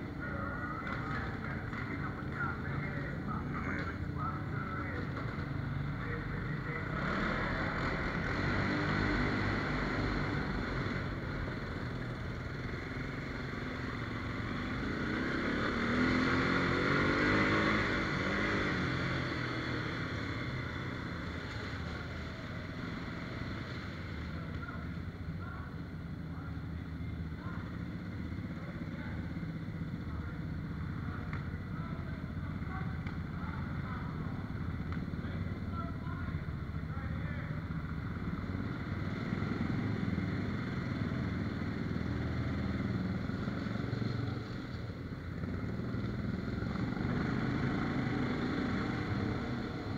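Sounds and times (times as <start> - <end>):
engine revving: 0.0 - 24.6, 27.7 - 44.7, 45.3 - 49.9
atv engines droning: 0.0 - 49.9.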